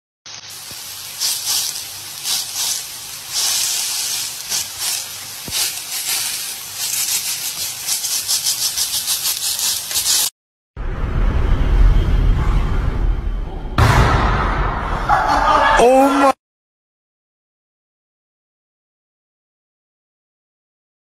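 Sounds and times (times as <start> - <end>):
sausage sizzling in frying pan: 0.3 - 10.3.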